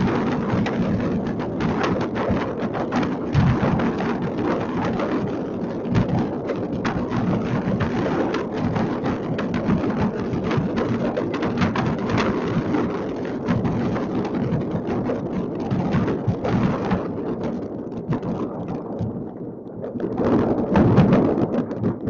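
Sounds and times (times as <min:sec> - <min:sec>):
fireworks bangs and crackles: 0:00.0 - 0:22.0.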